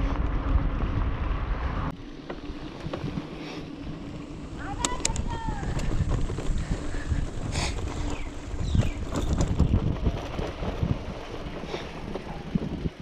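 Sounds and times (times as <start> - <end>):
bike tyres rumbling on dirt: 0.0 - 13.0
bike knocks and rattles: 2.1 - 13.0
wind buffeting microphone: 2.7 - 13.0.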